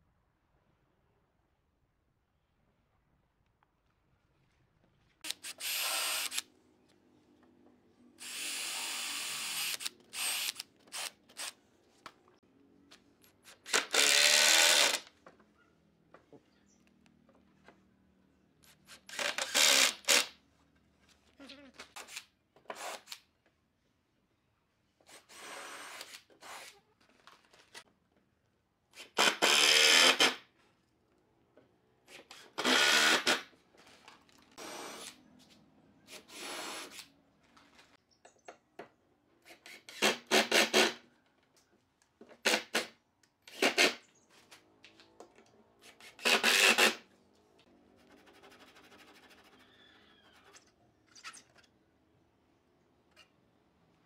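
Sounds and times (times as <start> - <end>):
cordless driver driving screws: 5.2 - 6.4.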